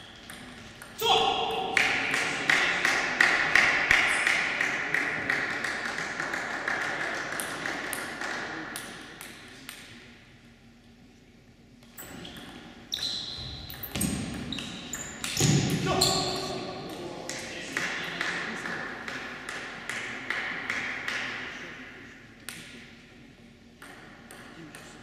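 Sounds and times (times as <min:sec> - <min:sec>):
table tennis ball bouncing: 0:00.0 - 0:01.0, 0:01.7 - 0:09.8, 0:17.3 - 0:21.4, 0:23.8 - 0:25.0
table tennis rally clicks: 0:01.8 - 0:09.9.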